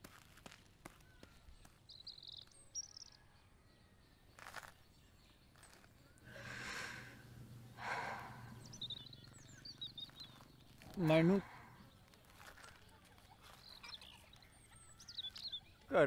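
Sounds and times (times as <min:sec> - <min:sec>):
bird chirps: 0:01.1 - 0:16.0
long breathy exhalations: 0:06.2 - 0:09.5.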